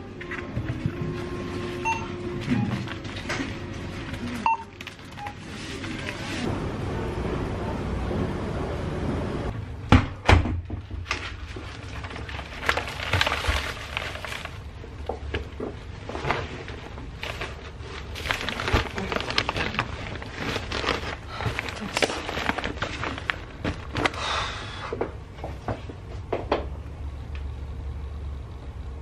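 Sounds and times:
bags rustling: 0:11.4 - 0:14.8, 0:15.9 - 0:24.5.

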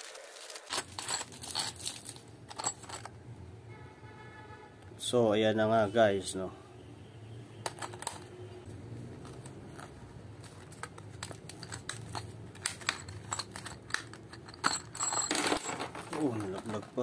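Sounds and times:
plastic blister pack crinkling: 0:00.0 - 0:02.2.

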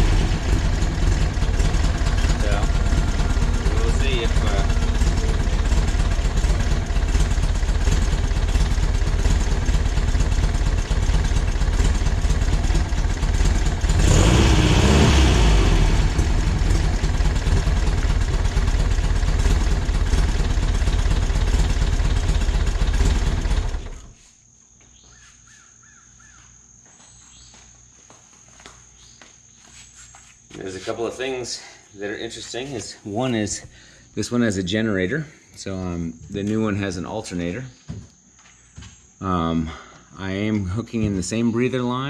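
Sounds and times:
car engine running: 0:00.0 - 0:24.2.

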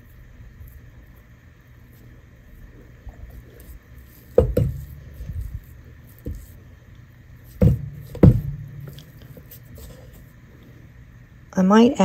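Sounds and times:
dull knocks against metal bowl: 0:04.4 - 0:05.3, 0:07.6 - 0:09.3.

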